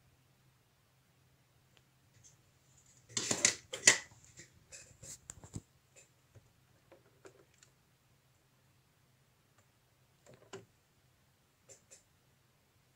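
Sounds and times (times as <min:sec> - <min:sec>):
rustling scrape: 0:04.2 - 0:05.6.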